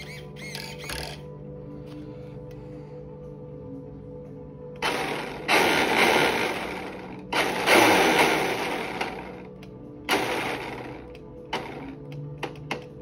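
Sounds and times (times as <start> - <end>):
electric motors whirring: 0.0 - 1.2.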